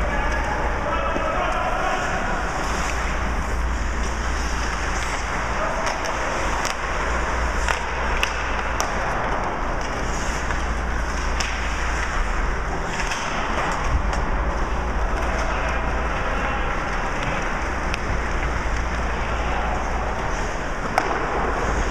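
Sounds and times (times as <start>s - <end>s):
hockey sticks and puck clacking: 0.0s - 21.9s
steady low rumble: 0.0s - 21.9s
skate blades scraping ice: 9.8s - 13.5s.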